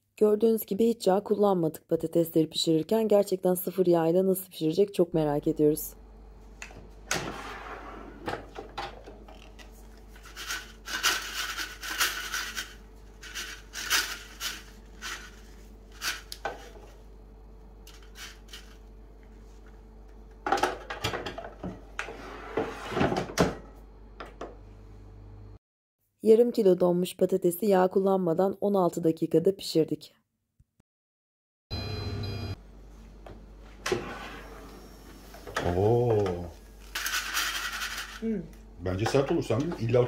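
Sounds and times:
fryer drawer sliding: 7.1 - 9.2, 22.0 - 23.5, 33.8 - 35.9
fries rattling in basket: 10.1 - 16.8.

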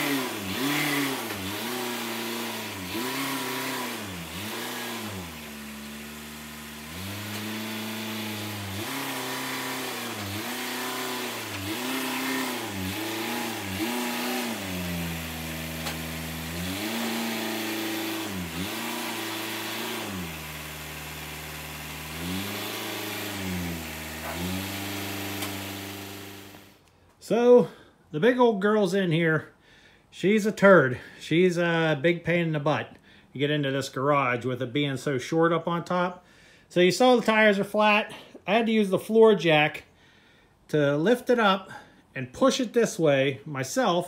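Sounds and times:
diesel engine revving: 0.0 - 26.8.

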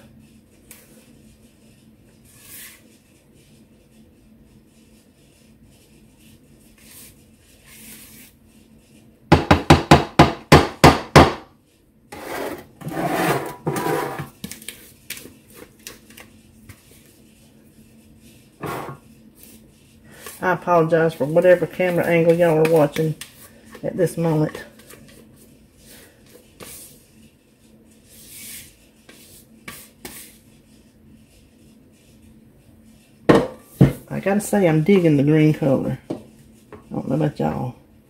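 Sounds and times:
spatula scraping bowl: 0.7 - 3.2, 12.1 - 14.9, 18.1 - 32.2
spatula knocking on pan: 9.3 - 11.4, 33.3 - 34.0.

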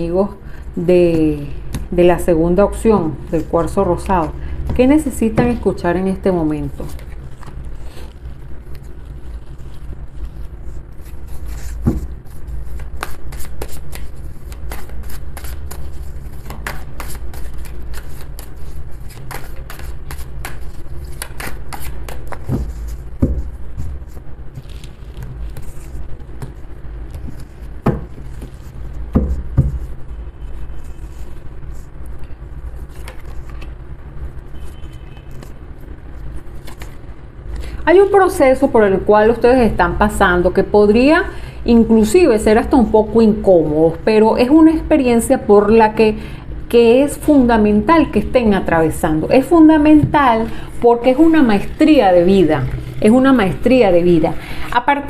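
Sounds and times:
steady low hum: 0.0 - 55.0
cards being shuffled: 6.6 - 29.9, 30.7 - 33.7, 34.6 - 37.7.

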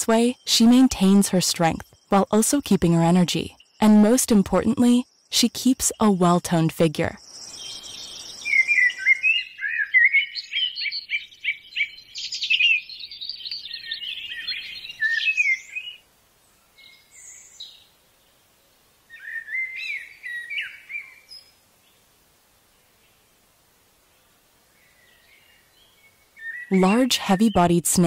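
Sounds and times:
bird chirps and trills: 7.2 - 16.0, 19.1 - 21.6, 24.9 - 28.0.

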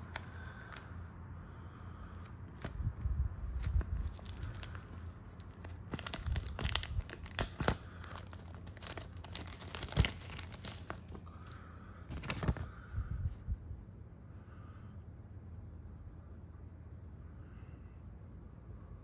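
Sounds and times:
plastic film crinkling: 0.0 - 0.8, 3.4 - 11.3, 12.1 - 12.8.

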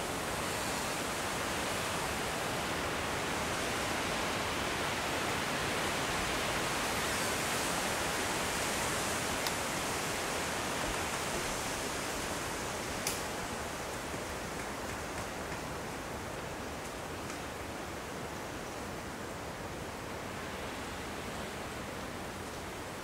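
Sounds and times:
steady rushing hiss: 0.0 - 23.0
faint click: 13.0 - 13.2.

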